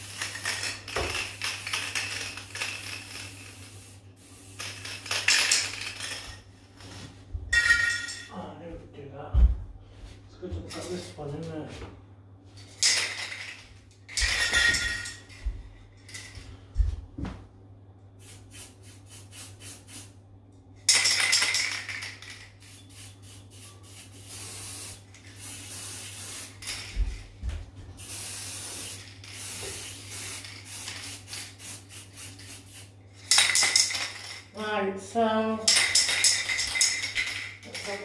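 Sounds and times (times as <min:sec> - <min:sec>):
spray paint can hissing: 0:00.0 - 0:06.3, 0:18.2 - 0:20.2, 0:21.6 - 0:26.9, 0:28.0 - 0:34.3.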